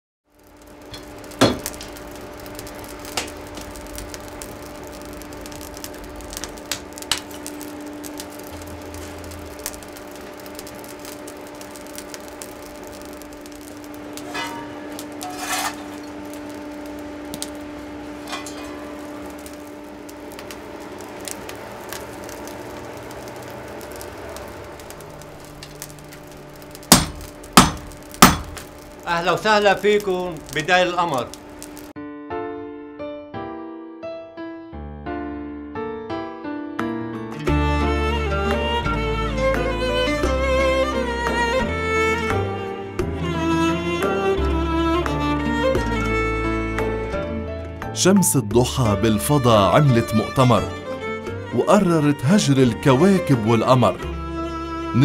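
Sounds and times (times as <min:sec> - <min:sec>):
hammer striking iron on anvil: 0:00.9 - 0:01.7, 0:14.2 - 0:16.1, 0:18.2 - 0:19.0, 0:26.9 - 0:28.6.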